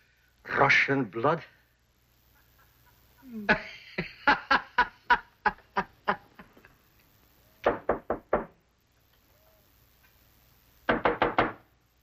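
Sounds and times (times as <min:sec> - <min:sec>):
man laughing: 0:02.4 - 0:06.6
knocking on door: 0:07.7 - 0:08.6, 0:10.9 - 0:11.6.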